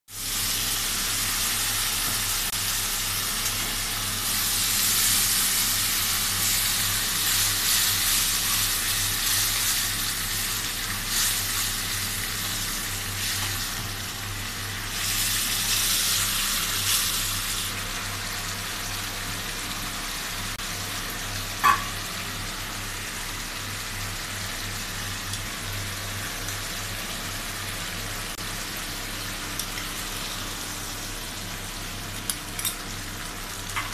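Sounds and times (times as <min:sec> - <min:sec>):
vegetables sizzling in hot oil: 0:00.1 - 0:33.9.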